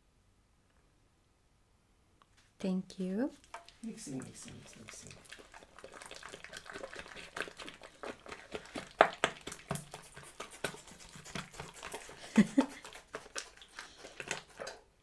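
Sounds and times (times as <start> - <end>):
slime squishing and popping: 5.4 - 14.8.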